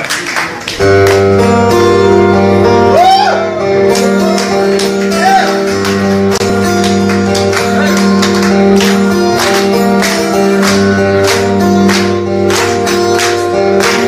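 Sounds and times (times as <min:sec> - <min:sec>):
acoustic guitars strumming: 0:00.7 - 0:14.0
hand percussion beat: 0:03.8 - 0:14.0.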